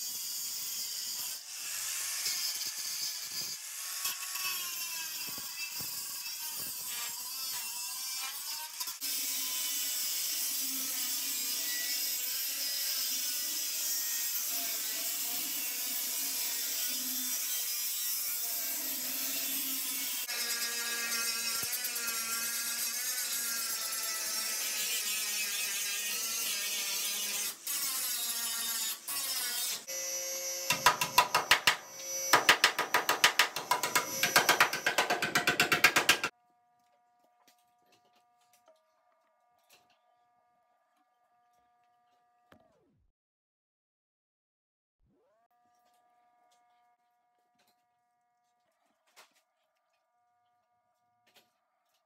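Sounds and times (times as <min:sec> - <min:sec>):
angle grinder grinding steel: 0:00.0 - 0:36.4
hammer tapping sheet metal: 0:30.7 - 0:36.3.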